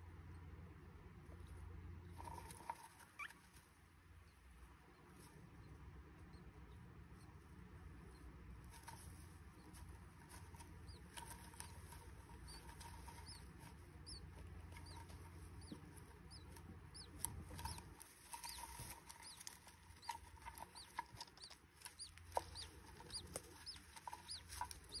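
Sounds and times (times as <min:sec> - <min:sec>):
soft taps and scratches: 0:08.4 - 0:25.0.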